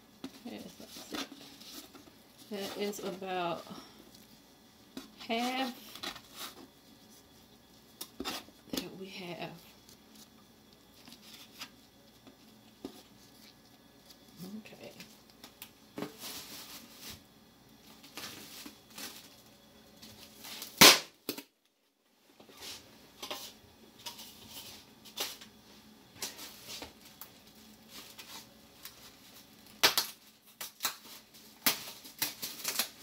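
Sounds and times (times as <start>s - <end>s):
rustling: 9.5s - 20.8s.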